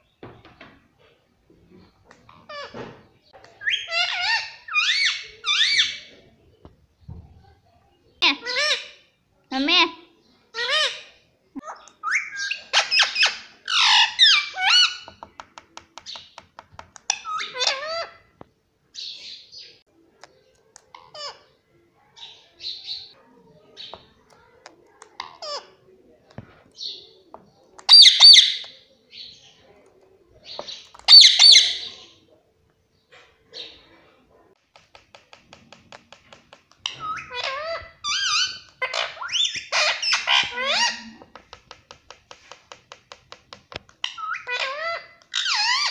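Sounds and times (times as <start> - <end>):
parakeet squawks and chirps: 3.6 - 6.1, 11.7 - 15.1, 17.1 - 18.3, 27.9 - 28.7, 30.6 - 32.0, 36.8 - 41.2, 44.0 - 45.9
beak tapping on mirror: 15.0 - 17.2, 34.7 - 37.1, 41.2 - 44.2.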